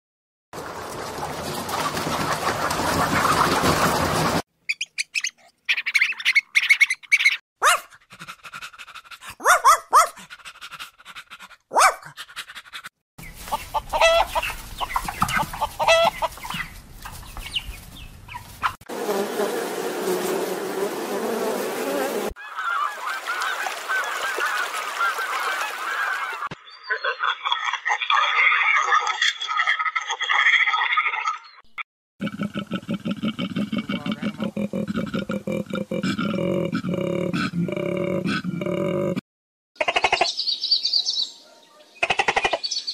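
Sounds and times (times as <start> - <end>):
chickens clucking: 0.7 - 4.4, 12.2 - 18.8
geese honking: 13.5 - 16.7.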